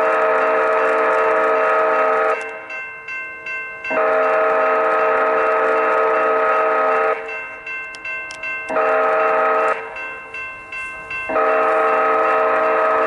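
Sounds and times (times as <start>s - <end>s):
train horn blasts: 0.0s - 2.6s, 3.9s - 7.2s, 8.7s - 10.0s, 11.3s - 13.0s
crossing bell dinging: 0.0s - 13.0s.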